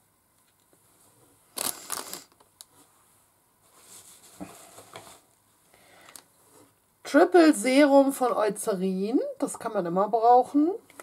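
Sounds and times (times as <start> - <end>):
packaging rustles and clacks: 1.6 - 2.5.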